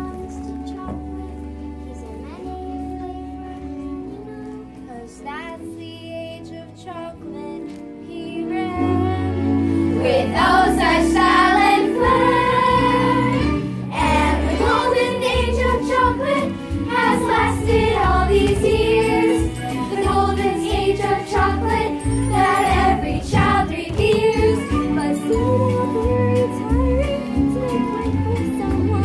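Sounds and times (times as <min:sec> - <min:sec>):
backing music: 0:00.0 - 0:29.0
children singing together: 0:10.0 - 0:29.0.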